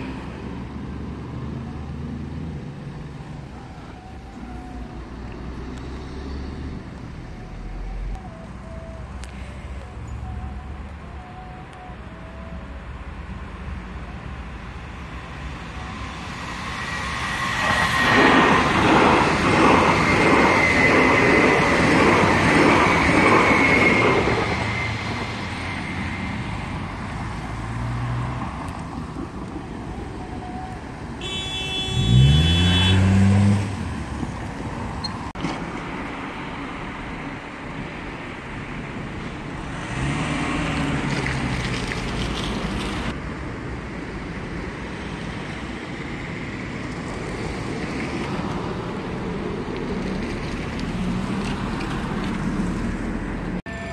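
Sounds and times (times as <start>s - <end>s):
vehicle engine accelerating: 4.6s - 9.2s, 32.0s - 34.4s, 39.6s - 43.2s
train high whine: 7.2s - 32.9s, 53.7s - 53.9s
electric train rushing rumble: 12.2s - 31.4s, 44.2s - 53.9s.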